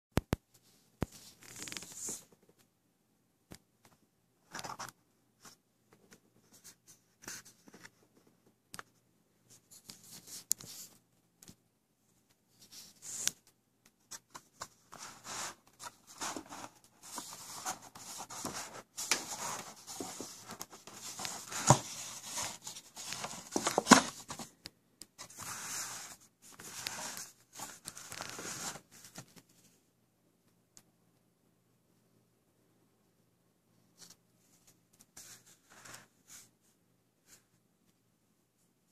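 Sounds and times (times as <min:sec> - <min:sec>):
paper sleeve scraping and rustling: 0:14.6 - 0:24.5, 0:25.2 - 0:28.9.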